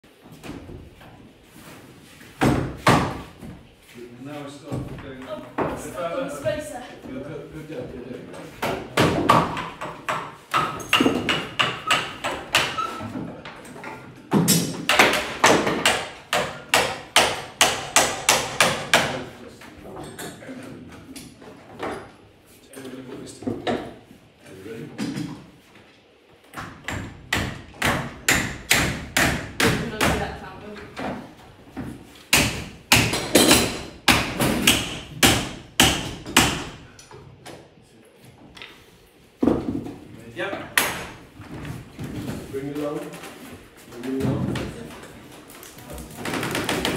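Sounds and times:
mallet striking wood: 8.6 - 12.9, 26.8 - 30.2, 32.3 - 36.8.

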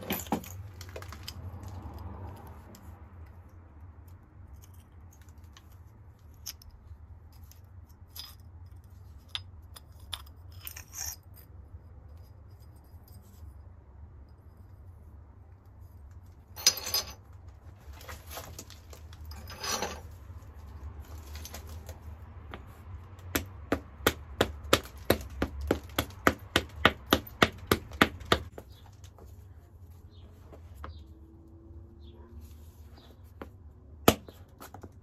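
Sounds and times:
stone scrapes: 10.0 - 11.4, 17.9 - 20.2.

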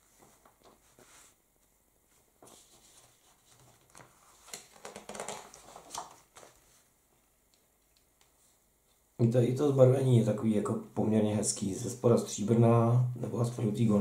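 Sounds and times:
paper page rustling: 2.2 - 6.9.

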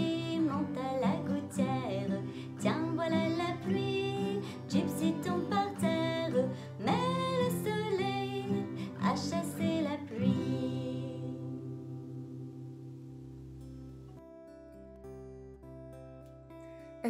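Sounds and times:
woman singing: 0.0 - 11.8
strummed acoustic guitar: 0.0 - 17.0.

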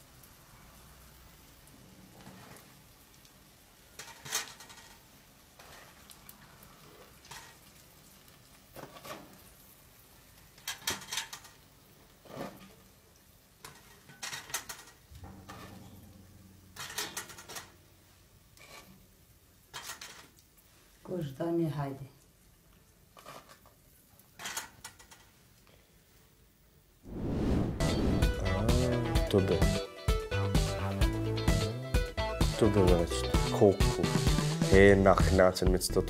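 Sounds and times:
metal spoon scraping a pot: 4.0 - 5.0, 13.6 - 17.8, 18.6 - 19.0, 19.7 - 20.3.

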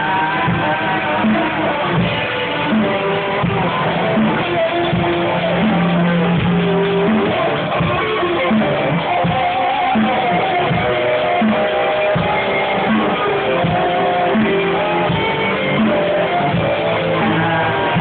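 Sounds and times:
drum kit kick and snare: 0.0 - 18.0
rock band playing: 0.0 - 18.0.

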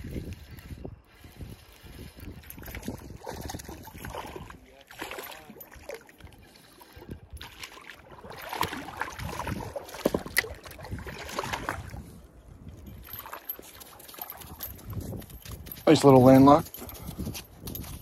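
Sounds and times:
fish splashing in water: 7.4 - 12.0.

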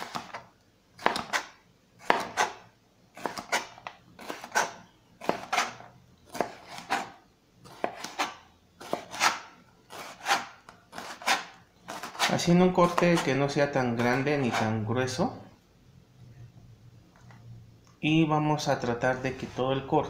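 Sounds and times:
knife slicing on cutting board: 1.0 - 2.6, 3.2 - 13.4, 14.0 - 14.8.

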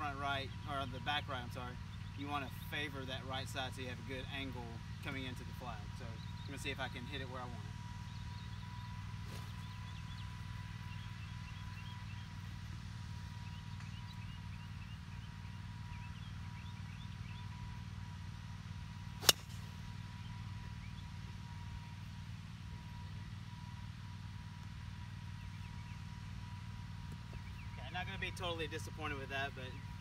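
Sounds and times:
golf club striking ball: 19.2 - 19.8.

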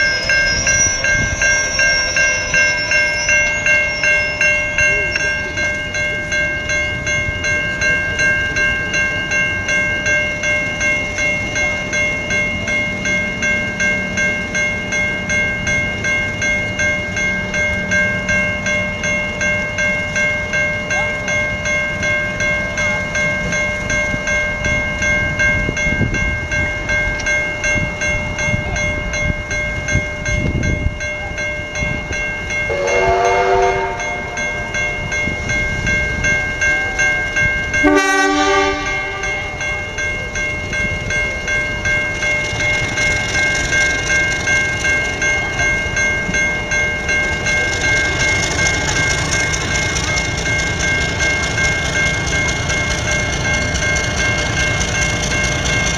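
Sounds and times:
level crossing bell ringing: 0.0 - 55.9
train rumbling: 0.0 - 55.9
train horn blasts: 32.7 - 34.4, 37.8 - 39.4.

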